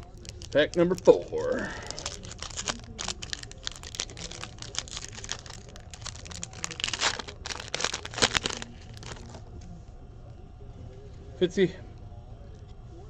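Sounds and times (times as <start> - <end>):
foil wrapper tearing and crinkling: 0.0 - 9.4.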